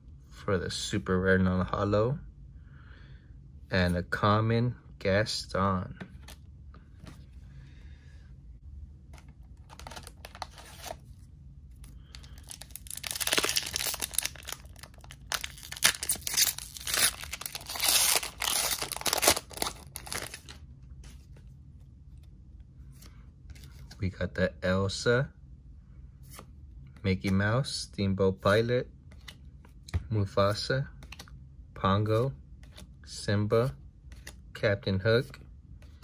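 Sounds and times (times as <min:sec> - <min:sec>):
foil wrapper crinkling and ripping: 0:12.2 - 0:20.5.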